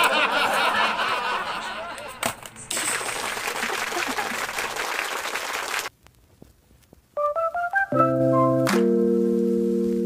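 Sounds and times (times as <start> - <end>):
dense hiss-like noise: 8.9 - 10.0.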